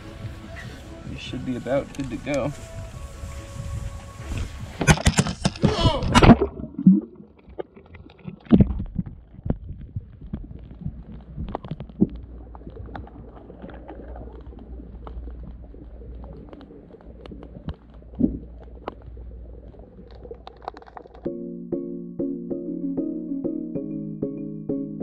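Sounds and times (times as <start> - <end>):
muffled underwater rumble: 2.6 - 21.3
camera splashing into water: 4.8 - 9.0
faint underwater clicks: 4.8 - 21.3.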